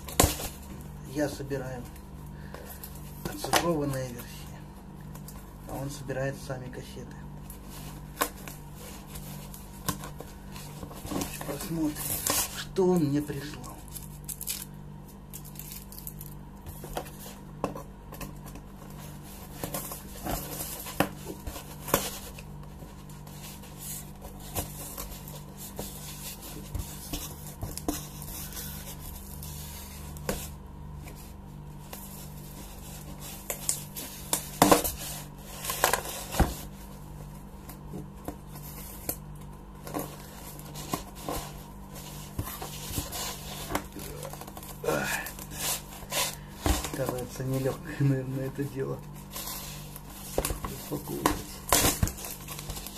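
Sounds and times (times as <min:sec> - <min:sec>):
steady low hum: 0:00.0 - 0:52.9
cardboard box being handled: 0:16.7 - 0:39.2, 0:39.8 - 0:52.9.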